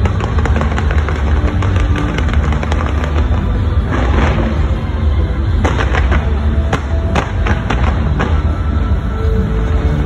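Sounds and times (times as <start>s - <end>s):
fireworks bangs and crackles: 0.0s - 10.0s
music playing: 0.0s - 10.0s.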